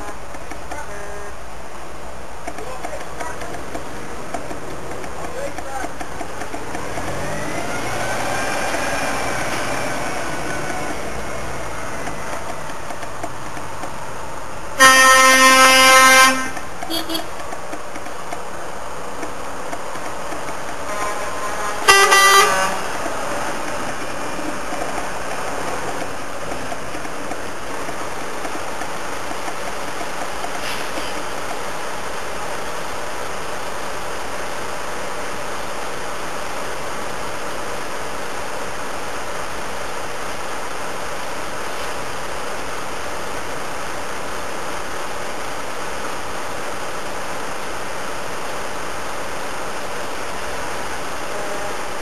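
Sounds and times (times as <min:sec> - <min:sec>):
truck engines passing: 0:00.0 - 0:52.0
truck horn blasts: 0:14.8 - 0:17.4, 0:20.8 - 0:23.0.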